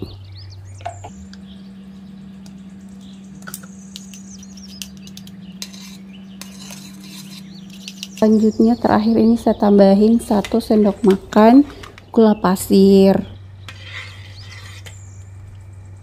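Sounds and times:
steady low hum: 0.0s - 16.0s
metal spoon scraping in a sieve: 4.5s - 9.0s, 13.7s - 15.2s.

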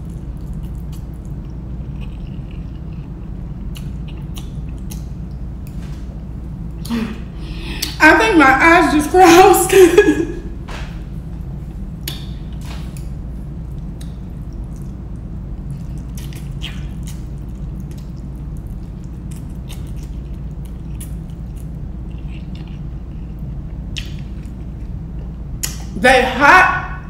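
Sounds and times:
mouth clicks and smacks: 0.0s - 5.4s, 15.8s - 21.2s, 25.6s - 25.9s
wet chewing and slurping: 0.0s - 5.4s, 12.0s - 25.8s
steady low hum: 0.0s - 27.0s.

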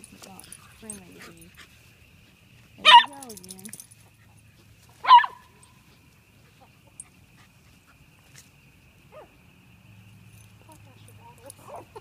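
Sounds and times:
dog barking: 2.8s - 3.2s, 5.0s - 5.4s.

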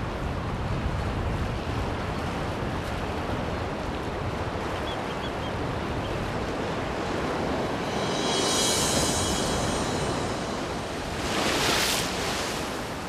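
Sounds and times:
surf breaking on rocks: 9.0s - 13.0s.

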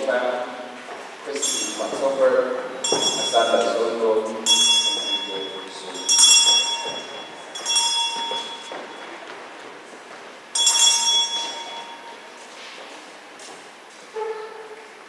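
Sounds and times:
bell ringing: 1.4s - 2.2s, 2.8s - 9.3s, 10.6s - 12.4s.

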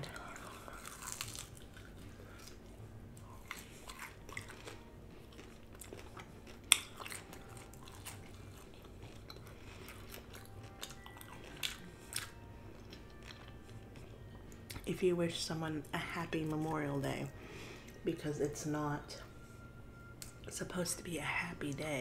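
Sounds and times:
person chewing: 0.0s - 14.8s.

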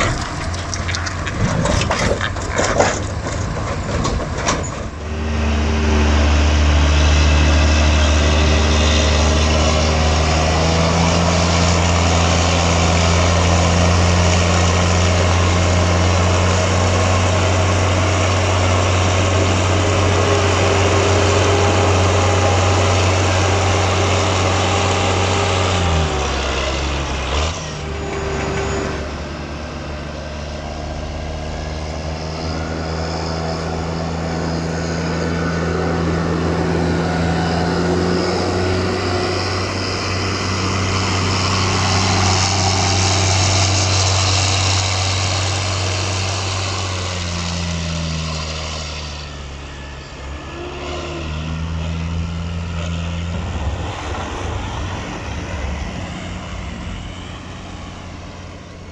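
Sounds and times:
diesel engine running: 0.0s - 58.9s.

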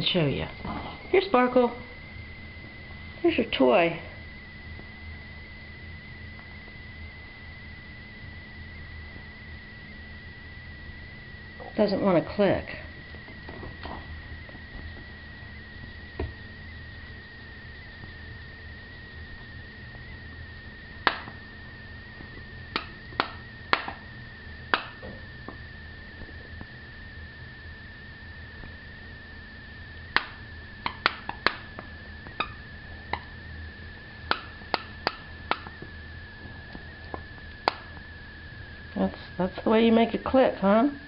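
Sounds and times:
faint high-pitched tone: 0.0s - 20.9s.

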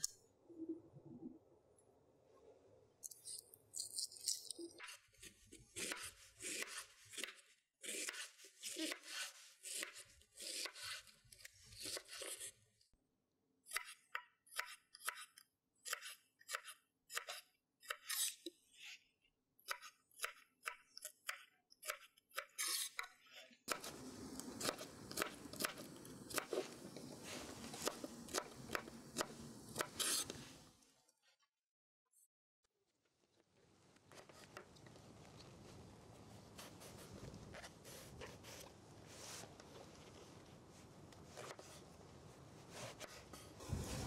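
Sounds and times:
steady hiss: 23.8s - 30.7s.

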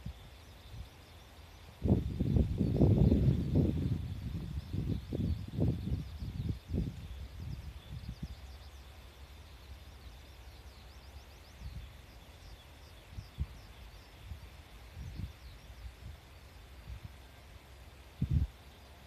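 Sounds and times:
faint high whine: 0.0s - 19.0s
small birds chirping: 0.0s - 19.0s
wind buffeting microphone: 1.8s - 8.5s, 13.0s - 16.2s, 18.2s - 18.6s.

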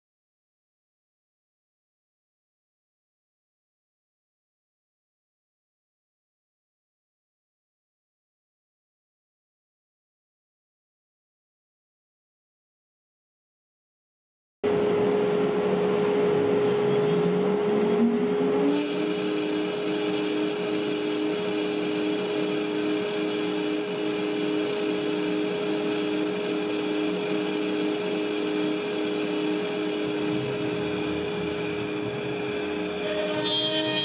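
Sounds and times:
motor pulsing hum: 14.7s - 34.0s
router spindle whine: 15.6s - 34.0s.

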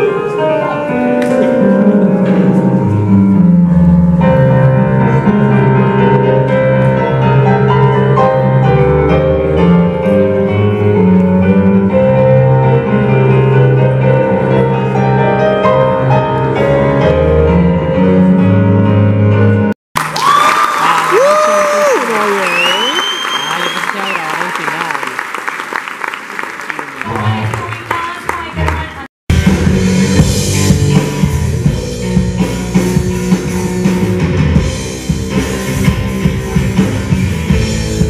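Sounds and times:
digital piano chords: 0.0s - 19.8s.

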